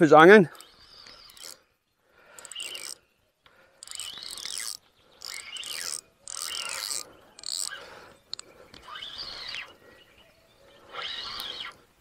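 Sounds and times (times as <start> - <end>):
fishing reel mechanical bursts: 0.5 - 1.7, 2.3 - 3.0, 3.8 - 9.6.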